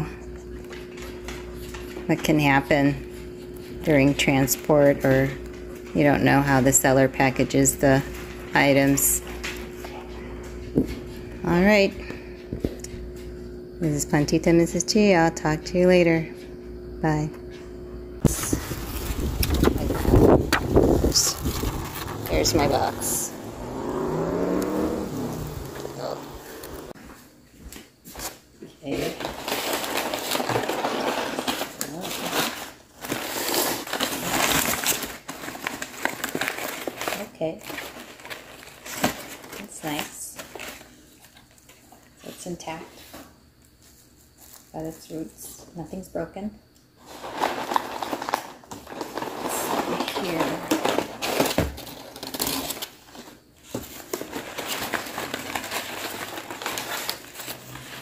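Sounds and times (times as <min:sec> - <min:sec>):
packing paper crinkling: 0:18.3 - 0:23.6, 0:28.9 - 0:41.8, 0:47.1 - 0:58.0.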